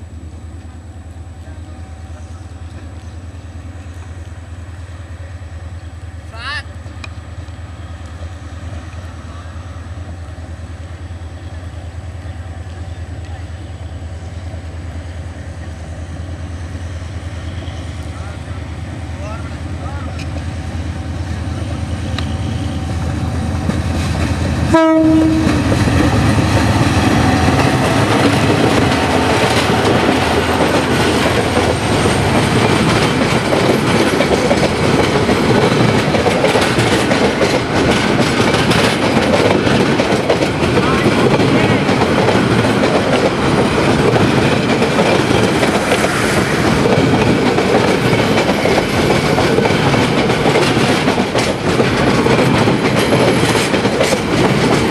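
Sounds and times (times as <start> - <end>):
locomotive engine hum: 0.0 - 54.9
train horn: 24.6 - 25.7
wheels clattering over rail joints: 27.6 - 46.1.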